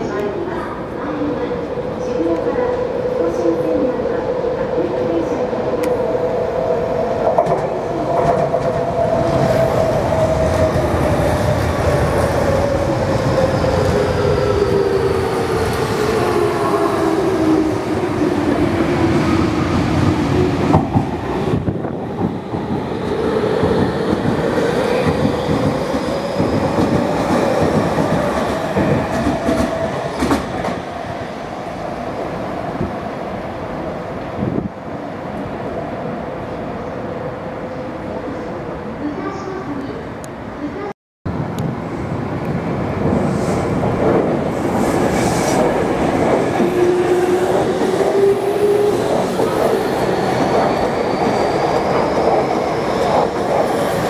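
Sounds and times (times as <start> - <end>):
train rumble: 7.2 - 31.1, 41.3 - 54.0.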